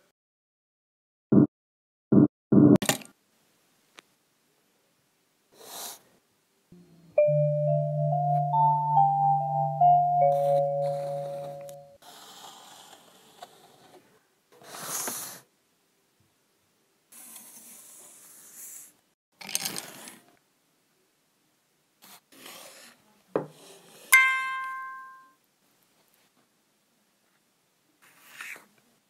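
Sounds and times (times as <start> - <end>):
bell-like ding: 7.2 - 12.0, 24.2 - 25.3.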